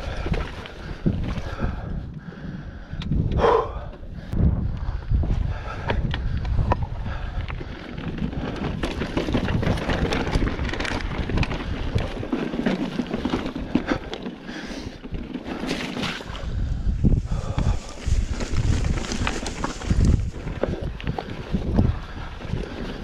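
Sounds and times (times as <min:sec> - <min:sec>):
wind buffeting microphone: 0:00.0 - 0:23.0
bike tyres clattering over stones: 0:06.5 - 0:23.0.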